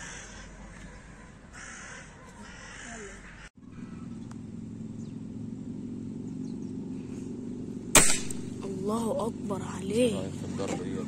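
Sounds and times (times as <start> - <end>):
crow cawing: 0.0 - 4.1
steady low hum: 0.0 - 11.0.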